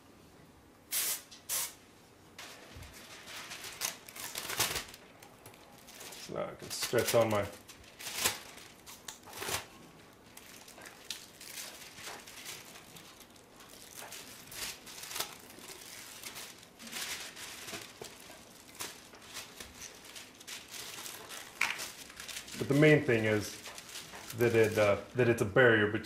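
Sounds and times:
plastic film crinkling: 0:02.4 - 0:25.5.

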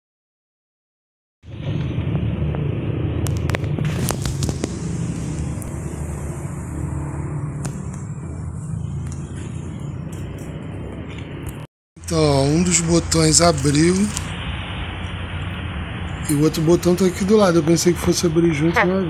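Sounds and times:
low outdoor rumble: 0:01.5 - 0:18.8.

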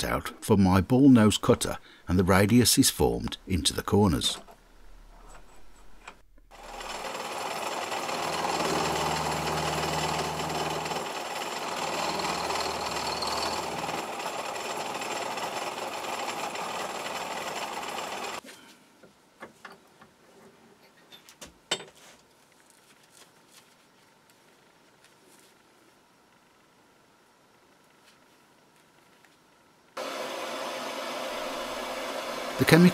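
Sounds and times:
milling machine cutting metal: 0:06.7 - 0:18.4, 0:30.0 - 0:32.9.

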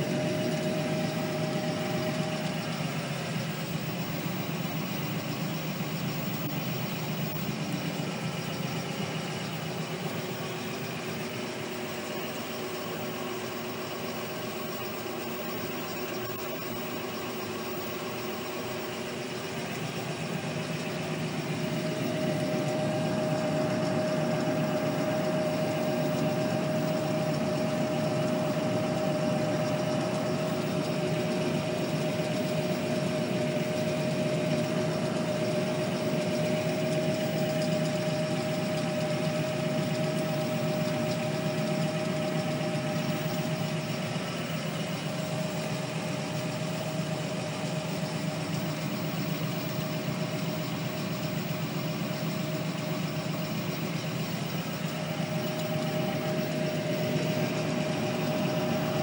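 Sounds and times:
steady high whine: 0:00.0 - 0:59.0
tractor diesel engine under load: 0:00.0 - 0:59.0.

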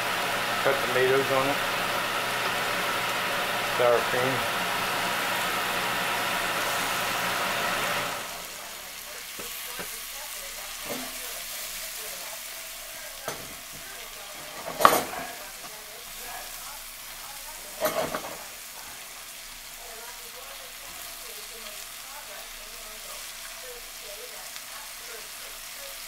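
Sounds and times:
food sizzling in a frying pan: 0:00.0 - 0:26.0
fork scraping a pan: 0:10.7 - 0:11.7, 0:13.2 - 0:15.7, 0:17.6 - 0:18.5.

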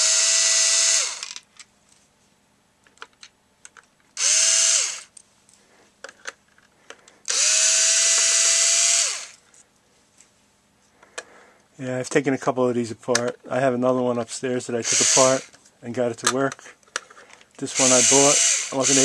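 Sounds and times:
power screwdriver motor whine: 0:00.0 - 0:01.4, 0:04.2 - 0:05.1, 0:07.3 - 0:09.4, 0:14.9 - 0:15.5, 0:17.7 - 0:19.0.

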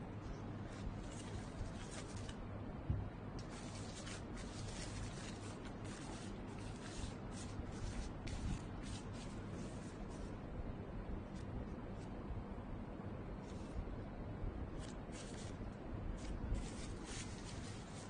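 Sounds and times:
plastic bag rustling and crinkling: 0:00.6 - 0:02.4, 0:03.4 - 0:10.3, 0:14.8 - 0:18.0.

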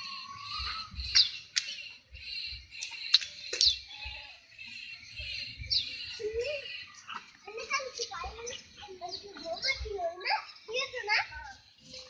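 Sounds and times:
small birds chirping: 0:00.0 - 0:12.0
sharp clicks: 0:01.1 - 0:01.8, 0:02.8 - 0:03.8.

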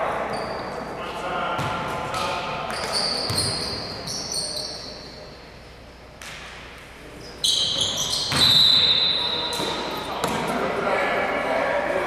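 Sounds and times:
basketball bouncing on gym floor: 0:01.6 - 0:03.8, 0:07.8 - 0:08.7
sneakers squeaking on hardwood: 0:02.7 - 0:05.2, 0:07.2 - 0:10.4.

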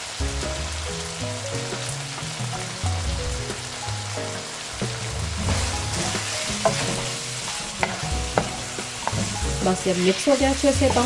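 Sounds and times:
food sizzling in a wok: 0:00.0 - 0:11.0.

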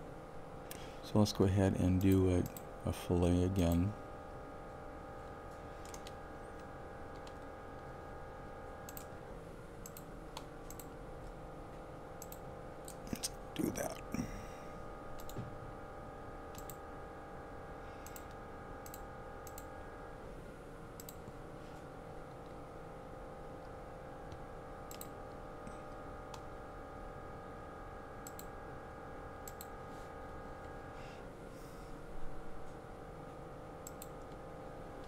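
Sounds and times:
faint multi-tone hum: 0:00.0 - 0:35.0
computer mouse clicking: 0:05.8 - 0:07.5, 0:08.9 - 0:09.1, 0:09.8 - 0:11.0, 0:12.2 - 0:13.2, 0:15.2 - 0:15.4, 0:16.5 - 0:16.8, 0:18.0 - 0:19.7, 0:21.0 - 0:21.2, 0:24.3 - 0:25.2, 0:28.2 - 0:28.5, 0:29.4 - 0:29.7, 0:33.8 - 0:34.4.

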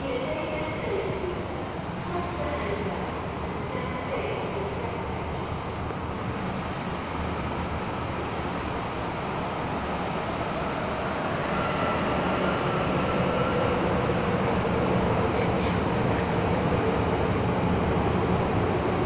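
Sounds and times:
faint train whine: 0:00.0 - 0:19.0
train rumble: 0:00.0 - 0:19.0.

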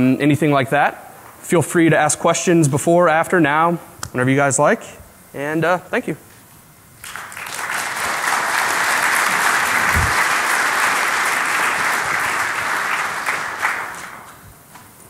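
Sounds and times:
audience applauding: 0:07.0 - 0:14.4.

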